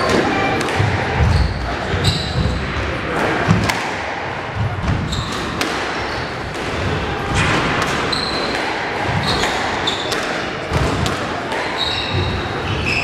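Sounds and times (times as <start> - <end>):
squash ball smacking: 0.0 - 1.4, 3.2 - 11.8
court shoes squeaking: 0.0 - 3.8, 4.6 - 13.0.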